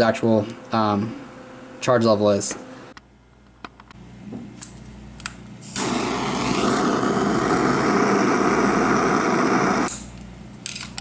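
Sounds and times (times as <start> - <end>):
gas torch flame rushing: 5.6 - 10.0.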